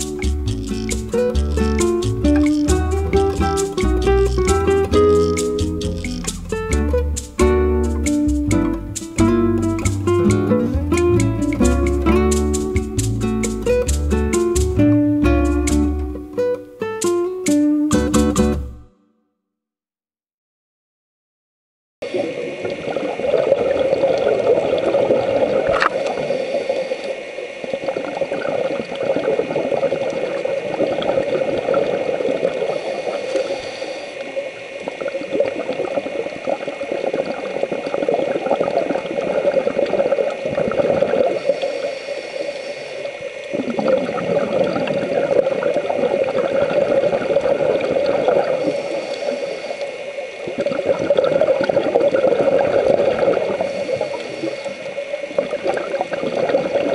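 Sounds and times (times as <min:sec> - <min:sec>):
air bubbles underwater: 0:00.0 - 0:16.6, 0:22.0 - 0:56.9
regulator breathing underwater: 0:25.6 - 0:27.7, 0:32.4 - 0:35.1, 0:40.6 - 0:56.9.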